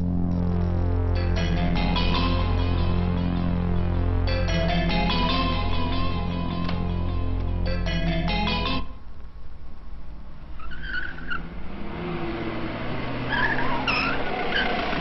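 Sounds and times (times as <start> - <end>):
engine and road noise: 0.0 - 15.0
car tyres squealing: 10.5 - 15.0.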